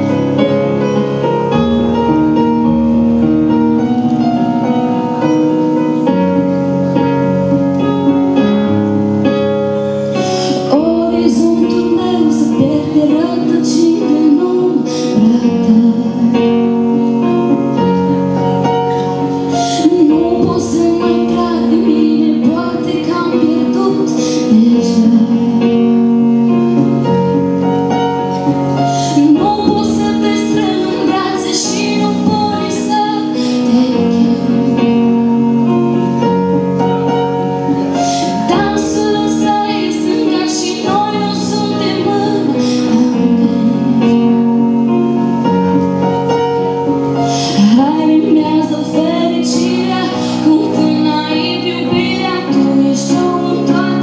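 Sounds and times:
woman singing: 10.2s - 17.0s, 19.5s - 26.3s, 28.8s - 35.4s, 38.0s - 44.8s, 47.3s - 54.0s.

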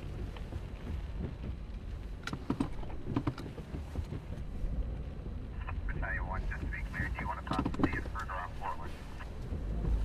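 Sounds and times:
steady low rumble: 0.0s - 10.0s
light clicks and taps: 5.9s - 8.4s.

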